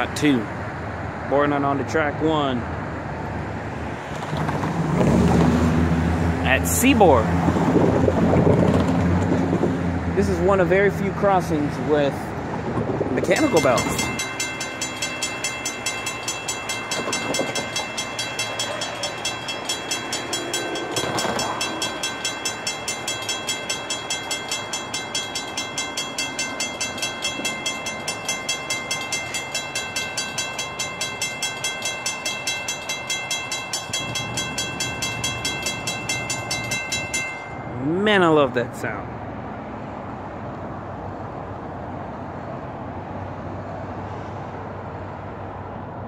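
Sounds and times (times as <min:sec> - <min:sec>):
crossing bell ringing: 0:13.2 - 0:38.7.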